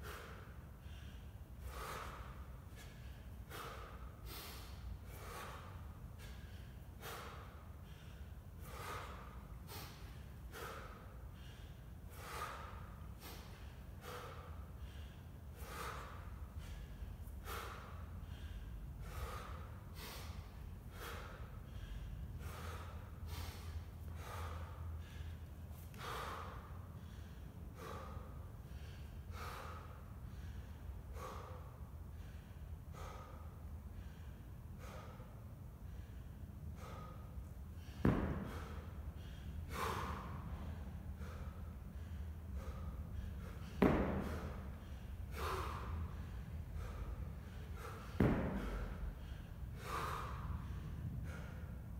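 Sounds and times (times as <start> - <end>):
man breathing forcefully: 0.0 - 51.9.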